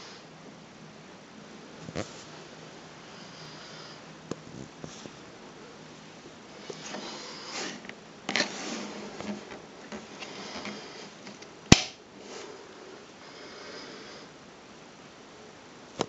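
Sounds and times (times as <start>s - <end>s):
rustling handling noise: 1.8s - 2.5s, 6.1s - 12.6s.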